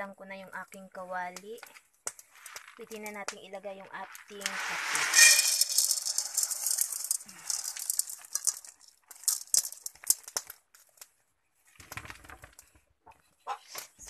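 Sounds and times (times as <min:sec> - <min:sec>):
coffee beans rattling on metal: 0:01.4 - 0:11.1.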